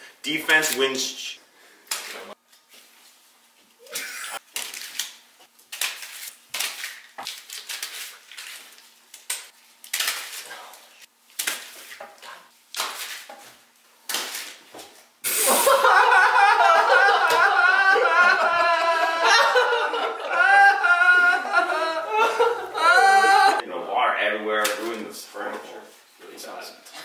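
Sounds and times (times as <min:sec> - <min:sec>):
men laughing: 0:03.8 - 0:04.4, 0:15.3 - 0:23.6.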